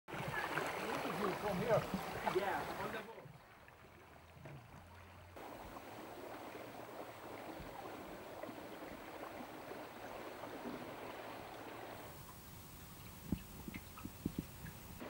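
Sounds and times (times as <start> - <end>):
water rushing along boat hull: 0.1 - 15.0
faint low hum: 5.4 - 15.0.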